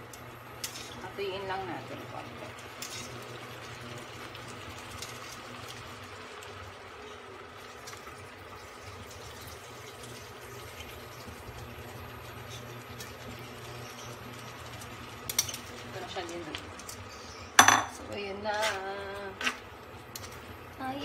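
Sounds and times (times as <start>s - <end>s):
sauce simmering and bubbling: 2.0s - 17.5s.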